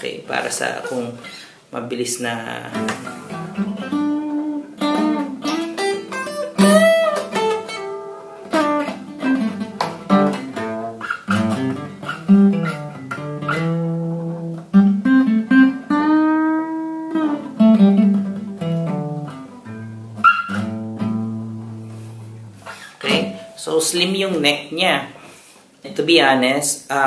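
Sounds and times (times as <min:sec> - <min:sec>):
acoustic guitar plucked: 0:02.3 - 0:23.6.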